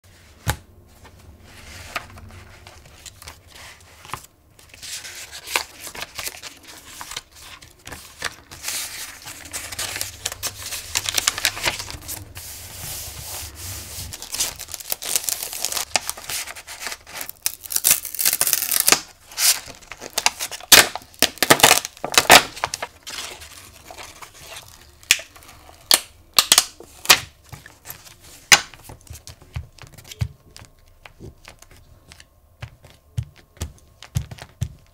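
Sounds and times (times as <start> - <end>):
pages rustling: 0.1 - 25.6
plastic packet crinkling: 5.3 - 12.3, 14.1 - 26.0
ink pad tapping on paper: 32.2 - 34.9.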